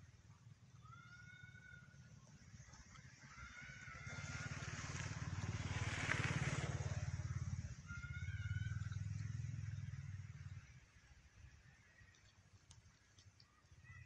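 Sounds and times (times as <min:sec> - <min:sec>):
motorbike engine passing: 0:02.5 - 0:11.2.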